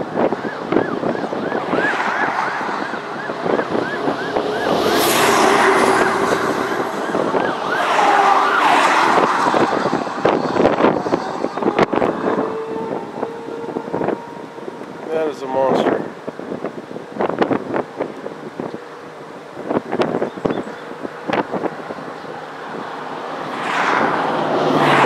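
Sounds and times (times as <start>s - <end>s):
siren yelping: 0.0s - 15.1s
rushing noise: 0.0s - 18.7s.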